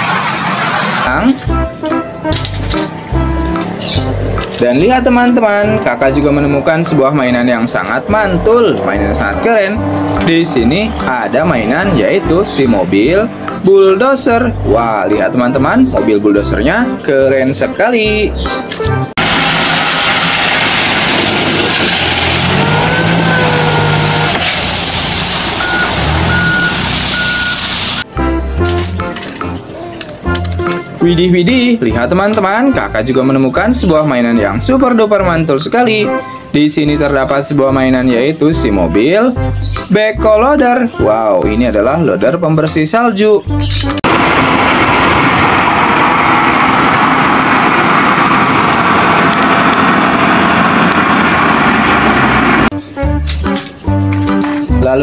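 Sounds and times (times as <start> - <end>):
loader engine under load: 19.2 - 28.1, 44.0 - 52.7
reversing alarm beeping: 22.4 - 24.4, 25.5 - 28.1
stones rattling hiss: 24.3 - 28.0.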